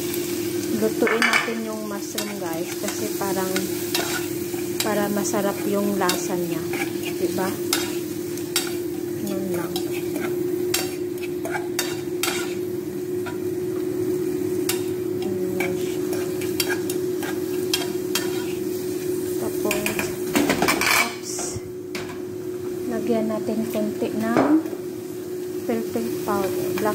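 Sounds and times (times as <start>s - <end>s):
mushrooms sizzling in a frying pan: 0.0s - 26.9s
steady hum: 0.0s - 26.9s
spatula scraping and tapping pan: 2.1s - 12.6s, 15.6s - 18.7s.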